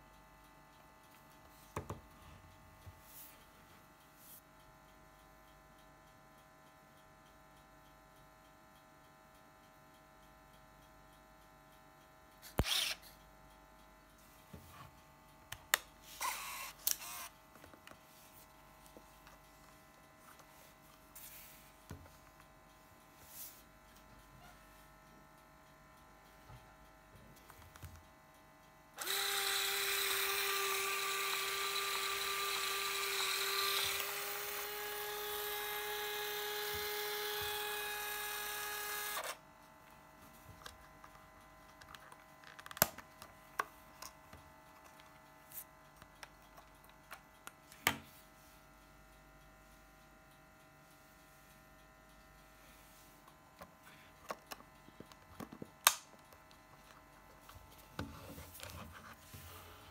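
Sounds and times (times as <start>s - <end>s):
camera motor whirring: 12.4s - 13.2s, 16.0s - 17.4s, 29.0s - 39.4s.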